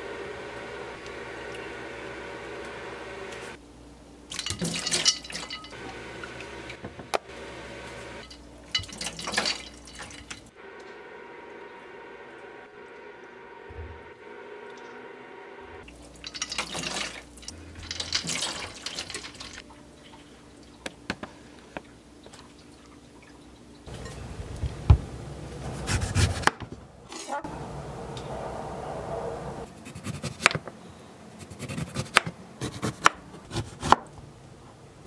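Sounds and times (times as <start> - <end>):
water and ice sloshing: 4.3 - 5.8, 8.2 - 10.5, 15.8 - 20.8.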